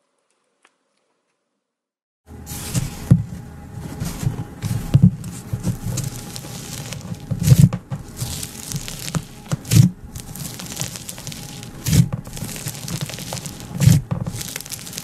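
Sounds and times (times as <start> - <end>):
slime squishing and popping: 6.0 - 15.0.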